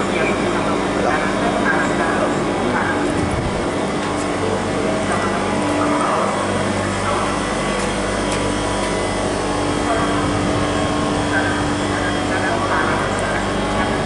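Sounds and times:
electric train equipment humming: 0.0 - 14.0.

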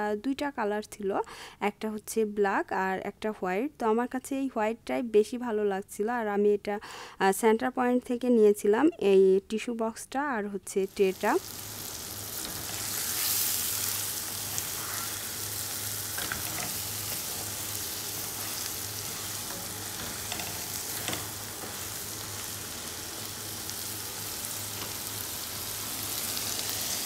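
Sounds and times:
food sizzling in a metal pot: 10.9 - 27.0.

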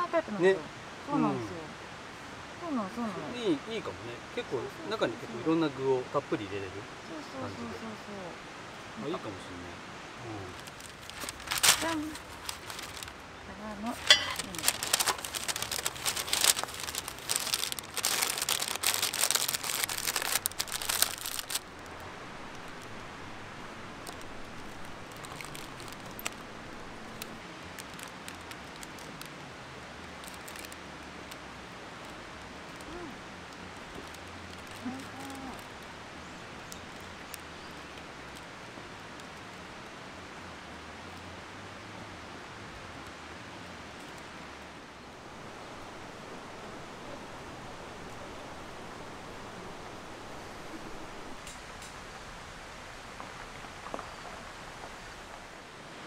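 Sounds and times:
faint steady hiss: 0.0 - 56.0
paper crinkling and rustling: 10.6 - 13.2, 13.9 - 22.0, 24.0 - 26.5, 30.1 - 30.8, 33.8 - 35.7.

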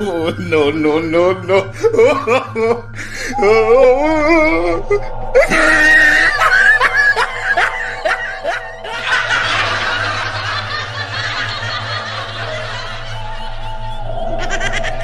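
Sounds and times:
music drone: 0.0 - 15.0
high-pitched cackling laughter: 5.4 - 15.0.

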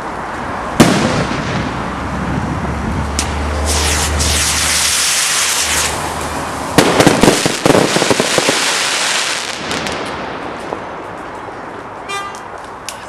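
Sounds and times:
firework crackling: 0.8 - 2.1, 3.2 - 10.9
firework bangs: 0.8 - 2.4, 3.2 - 11.0
firework rising hiss: 3.2 - 10.0.

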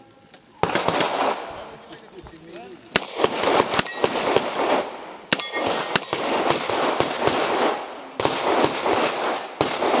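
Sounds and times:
high metallic ringing: 5.3 - 6.2.

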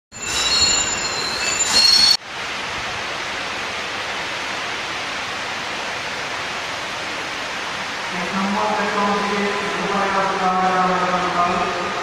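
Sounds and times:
train wheels squealing: 0.1 - 2.2
station ambience hiss: 0.3 - 12.0.

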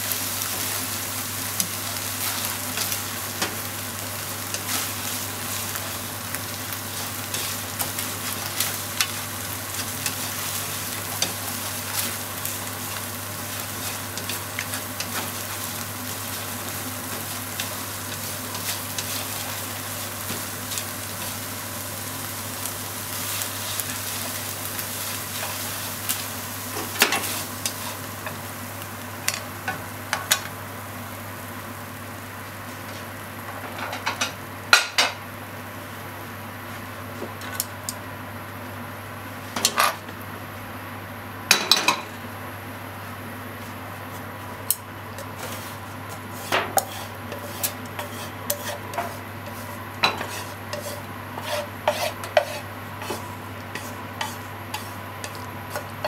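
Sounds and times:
food sizzling in a frying pan: 0.0 - 35.4, 44.6 - 56.0
wooden spatula scraping a pan: 45.2 - 56.0.

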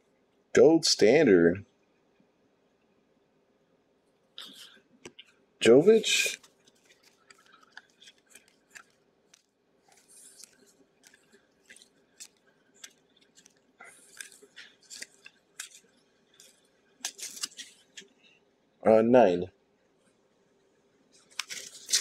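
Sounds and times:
faint steady hum: 0.0 - 22.0
cards clicking and swishing: 6.1 - 18.1, 21.2 - 22.0.

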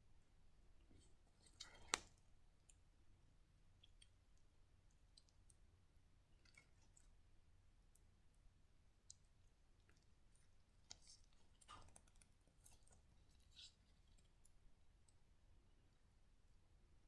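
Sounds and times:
soft clicks and rustles: 9.0 - 15.2.

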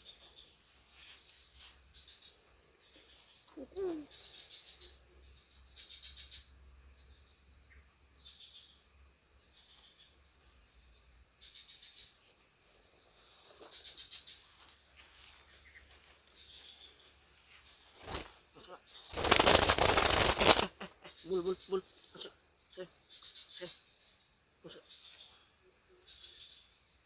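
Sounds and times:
faint insect chirping: 0.0 - 27.0.

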